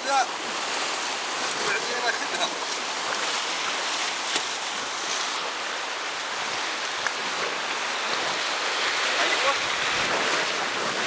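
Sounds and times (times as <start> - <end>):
river rapids rushing: 0.0 - 11.0.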